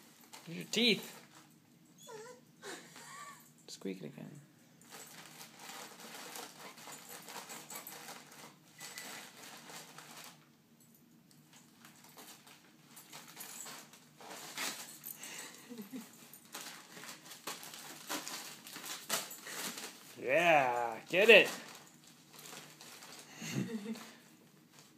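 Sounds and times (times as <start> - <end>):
wrapping paper crinkling: 4.9 - 10.4, 16.3 - 24.9.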